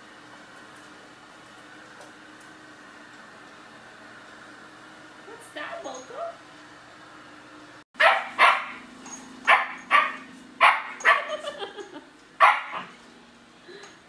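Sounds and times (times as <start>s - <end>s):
puppy barking: 8.0s - 11.6s, 12.4s - 13.0s.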